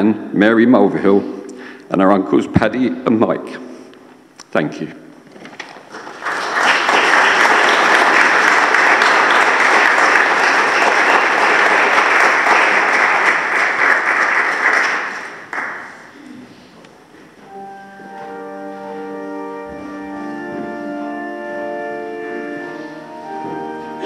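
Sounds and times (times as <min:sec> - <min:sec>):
people clapping: 0:05.6 - 0:16.4.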